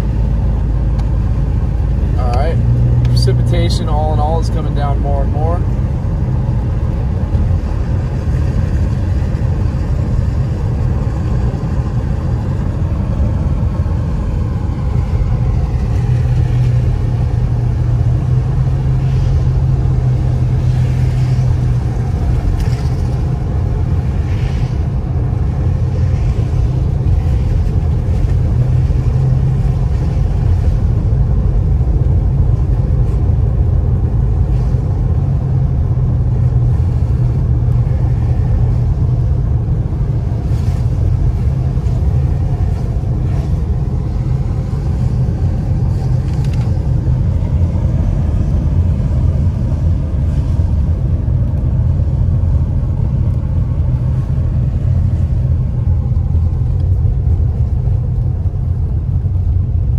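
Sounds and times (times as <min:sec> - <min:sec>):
car engine and tyres rumbling: 0:00.0 - 0:59.9
tyres hissing on wet road: 0:07.5 - 0:31.0.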